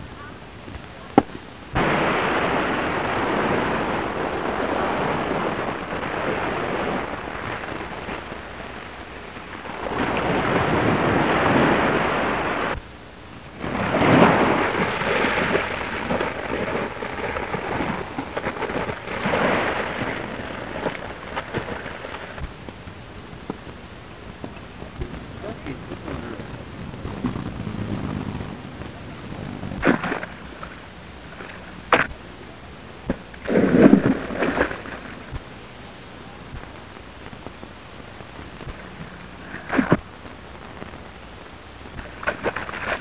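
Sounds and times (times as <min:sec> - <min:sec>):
surf washing onto beach: 0:01.2 - 0:12.9, 0:13.5 - 0:41.2, 0:41.9 - 0:43.0.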